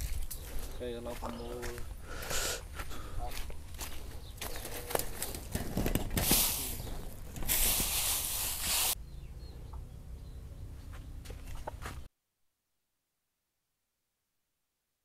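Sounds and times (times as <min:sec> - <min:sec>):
footsteps on dry leaves and straw: 0:00.0 - 0:09.0.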